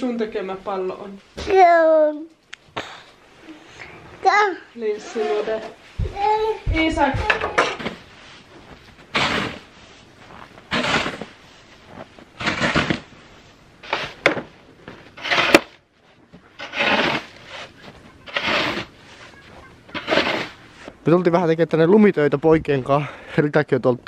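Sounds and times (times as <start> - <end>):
snow shovel scraping snow: 9.1 - 14.3, 15.0 - 15.8, 16.6 - 20.9.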